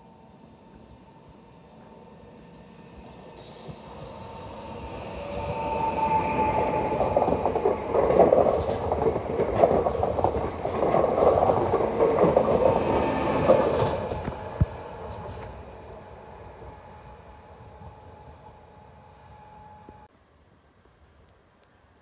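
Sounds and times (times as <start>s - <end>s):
electric train whine: 0.0s - 20.1s
train wheels clattering over joints: 5.4s - 15.5s.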